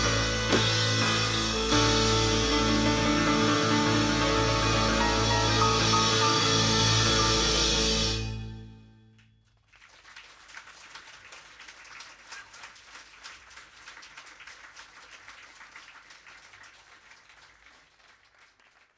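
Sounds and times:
audience applauding: 0:09.6 - 0:18.9.

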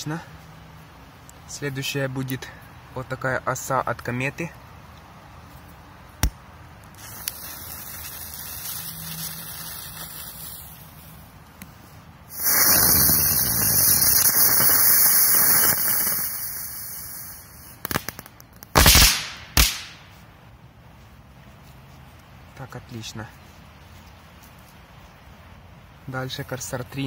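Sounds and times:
firework crackles: 0:06.8 - 0:11.3, 0:12.3 - 0:20.3
fuse sizzling: 0:06.8 - 0:18.2
firework hissing spray: 0:06.9 - 0:11.2, 0:12.3 - 0:18.2
sharp firecracker bang: 0:17.9 - 0:20.1.

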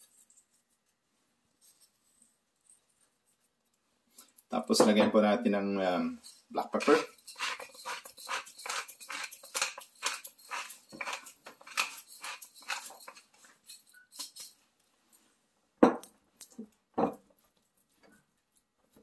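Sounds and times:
pepper mill grinding: 0:06.2 - 0:14.6.

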